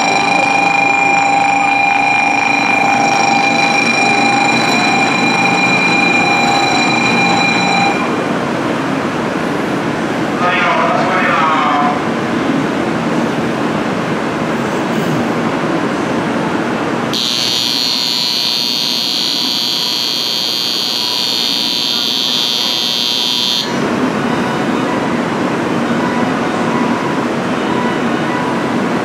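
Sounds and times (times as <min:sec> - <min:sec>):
electric departure bell ringing: 0:00.0 - 0:08.3, 0:17.2 - 0:23.9
trains and station noise: 0:00.0 - 0:29.0.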